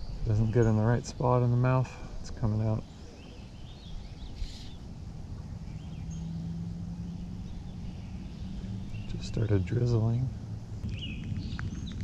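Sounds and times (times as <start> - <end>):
steady low hum: 0.0 - 12.0
wind rumble on microphone: 0.0 - 12.0
faint bird chirps: 2.8 - 12.0.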